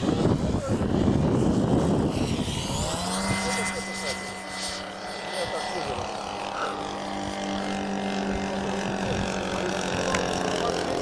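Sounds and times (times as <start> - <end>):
model airplane engine droning: 0.0 - 11.0.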